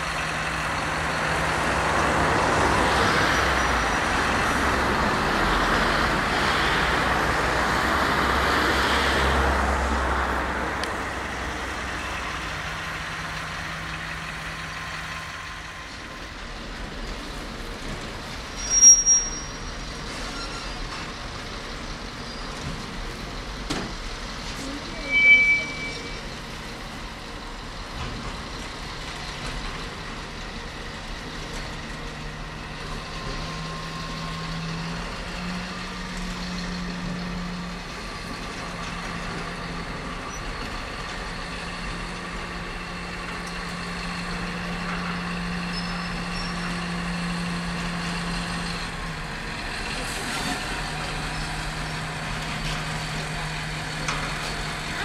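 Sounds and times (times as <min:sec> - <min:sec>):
diesel locomotive engine humming: 0:00.0 - 0:55.0
freight train rumble: 0:00.0 - 0:55.0.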